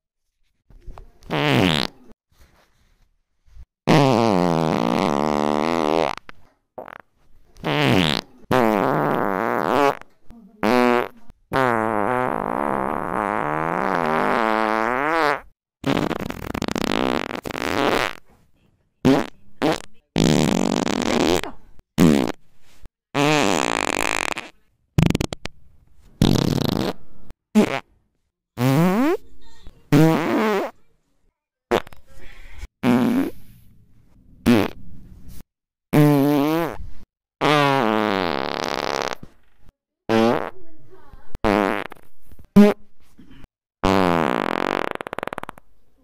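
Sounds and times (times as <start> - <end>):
fart sounds: 1.2 - 2.2, 3.9 - 18.3, 19.0 - 25.6, 26.2 - 27.9, 28.6 - 29.2, 29.9 - 30.8, 31.7 - 32.1, 32.7 - 33.6, 34.4 - 34.8, 35.9 - 40.6, 41.3 - 45.8.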